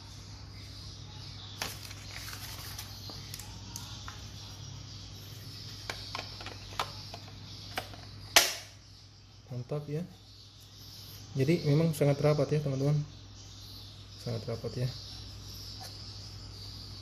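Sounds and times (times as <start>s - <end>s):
loud sharp plastic clack: 7.8s - 8.7s.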